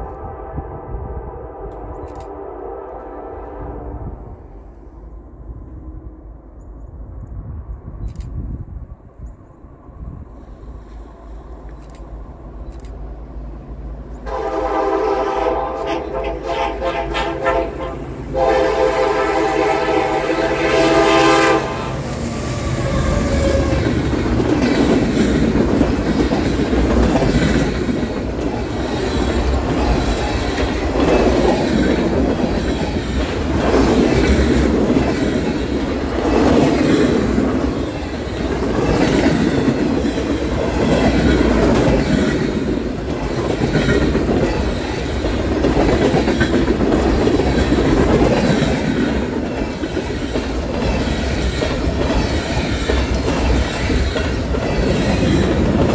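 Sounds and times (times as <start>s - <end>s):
train wheels rumbling on rails: 1.0s - 55.9s
clickety-clack over rail joints: 22.4s - 55.9s.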